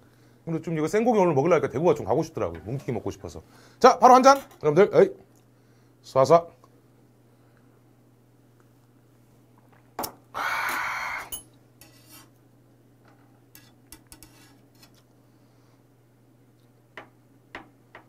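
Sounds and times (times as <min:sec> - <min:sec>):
loud breathy exhale: 0:10.4 - 0:11.3.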